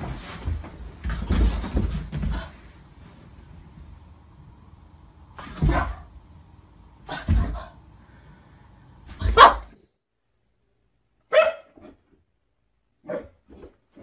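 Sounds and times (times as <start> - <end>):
dog barking: 9.2 - 9.8, 11.3 - 11.9, 13.0 - 13.4
puppy short high bark: 9.3 - 9.7, 11.3 - 11.8.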